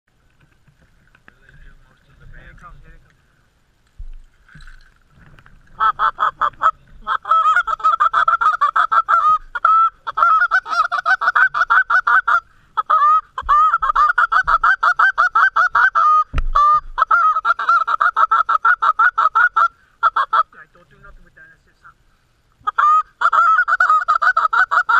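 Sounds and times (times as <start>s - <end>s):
low thump: 4.0s - 5.4s, 16.3s - 16.6s
goose honking and clucking: 5.7s - 20.6s, 22.6s - 24.9s.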